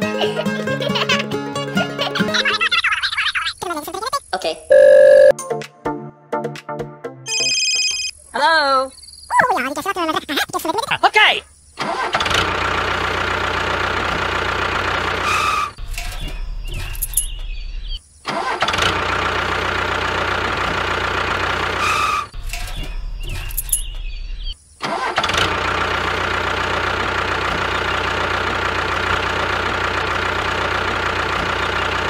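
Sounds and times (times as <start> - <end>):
tractor engine starting and running: 11.8 - 32.0.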